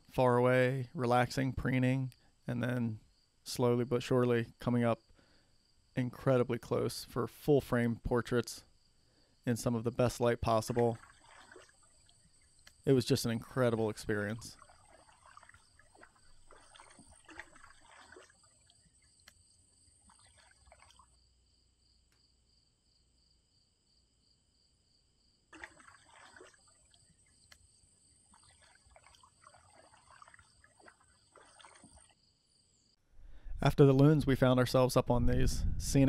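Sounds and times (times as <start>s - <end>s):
water dripping and trickling: 9.6s - 21.2s, 25.5s - 32.2s.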